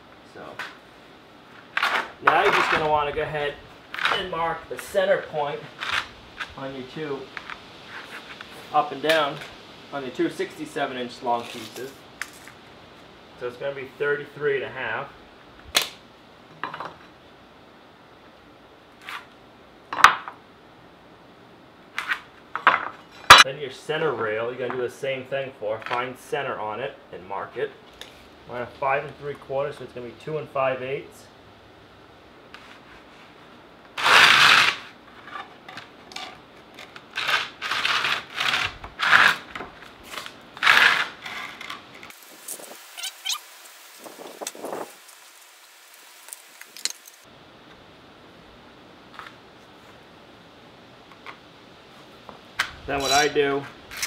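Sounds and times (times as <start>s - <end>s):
wood scraping over concrete: 1.6s - 9.5s, 32.5s - 43.0s.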